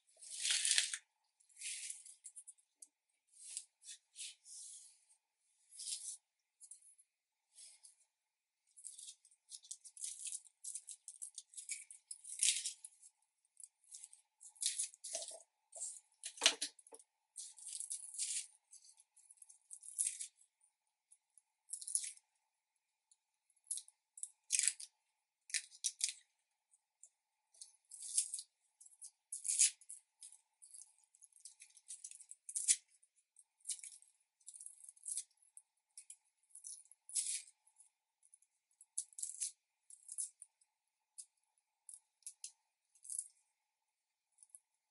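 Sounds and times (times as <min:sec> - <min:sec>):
garlic skins crackling and rustling: 0:00.2 - 0:01.0.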